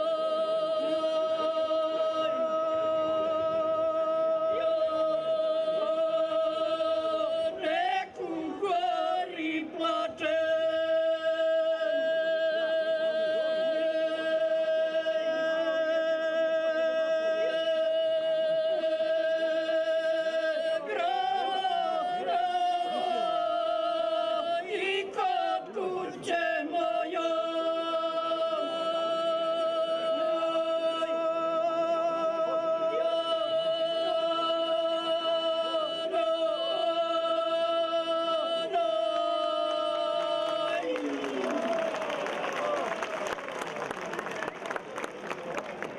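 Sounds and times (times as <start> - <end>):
two women singing unaccompanied: 0.0 - 41.8.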